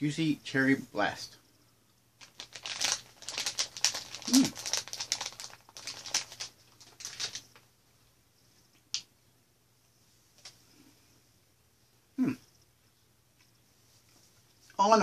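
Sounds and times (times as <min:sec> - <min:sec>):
plastic bag crinkling: 0:02.2 - 0:07.6.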